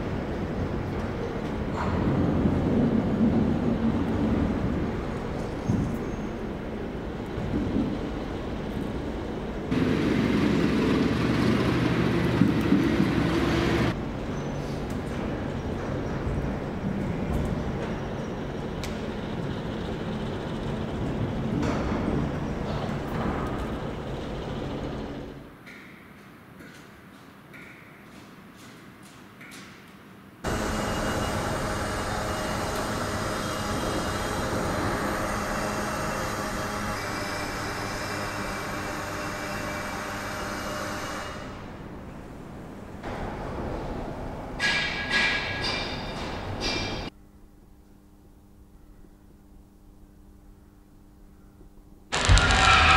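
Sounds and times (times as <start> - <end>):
loud steady machinery noise: 0.0 - 14.2, 14.9 - 25.6, 30.4 - 43.4, 52.1 - 52.9
low mechanical hum: 0.0 - 52.9
loud hiss with wavering drone: 30.5 - 42.9.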